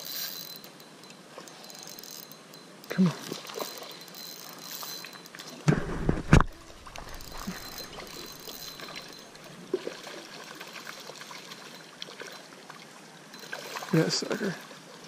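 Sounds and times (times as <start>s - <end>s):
creek water trickling over stones: 0.0s - 5.7s, 6.4s - 15.0s
loud low thumps: 5.7s - 7.2s.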